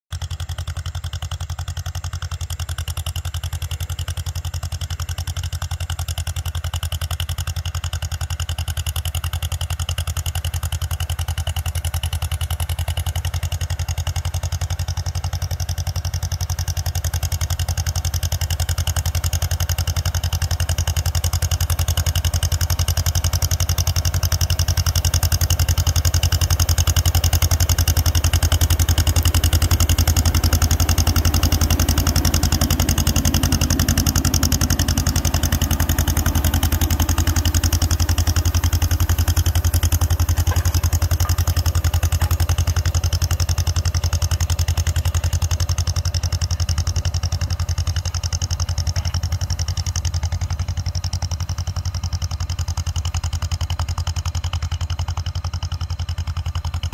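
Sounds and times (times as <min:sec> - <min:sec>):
tractor engine running under load: 0:00.1 - 0:56.9.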